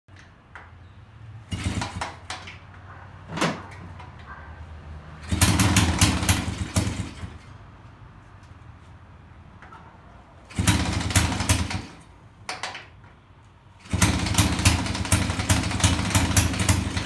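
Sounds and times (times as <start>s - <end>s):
motorcycle engine sputtering: 1.4s - 2.6s, 5.2s - 7.4s, 10.5s - 12.0s, 13.8s - 17.0s.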